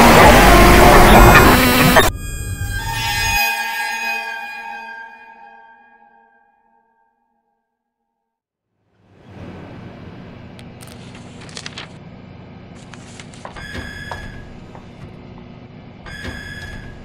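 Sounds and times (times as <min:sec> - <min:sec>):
high trilling tone: 0:00.0 - 0:07.2
room hum: 0:08.8 - 0:17.0.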